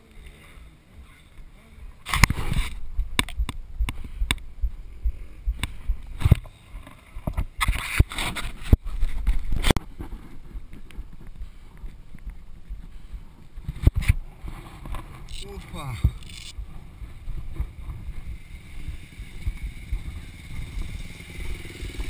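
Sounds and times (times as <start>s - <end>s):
camera handling taps and knocks: 3.1s - 4.4s.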